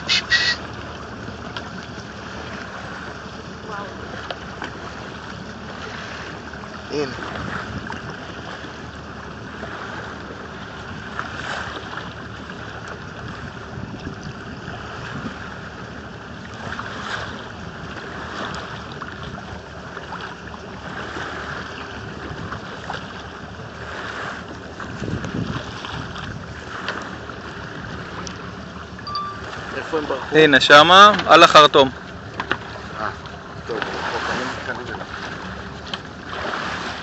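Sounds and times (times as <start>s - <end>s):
water splashing against boat hull: 0.0s - 37.0s
wind buffeting microphone: 4.8s - 15.9s, 20.8s - 30.3s.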